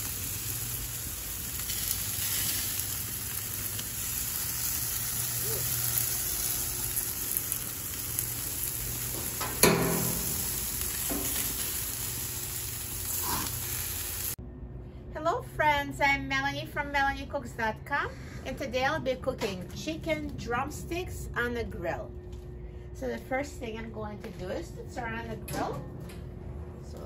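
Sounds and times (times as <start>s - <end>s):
chicken sizzling on a grill: 0.0s - 14.4s.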